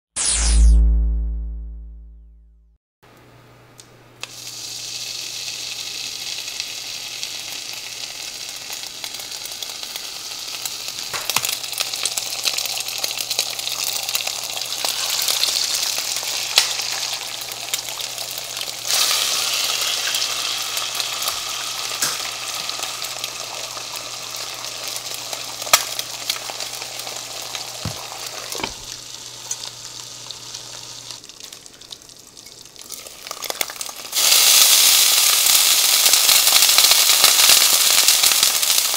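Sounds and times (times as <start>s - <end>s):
ham sizzling in oil: 4.2s - 38.9s.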